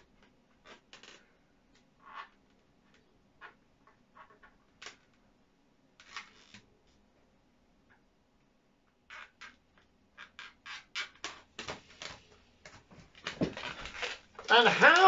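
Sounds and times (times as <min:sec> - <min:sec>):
fingers handling balloon: 0:09.1 - 0:15.0.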